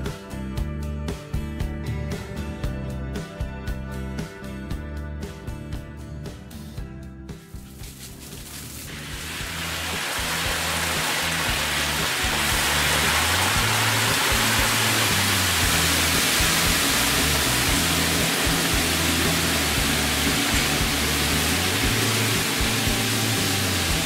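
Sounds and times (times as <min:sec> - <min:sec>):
background music: 0:00.0 - 0:24.0
hot oil sizzling in a wok: 0:07.5 - 0:24.0.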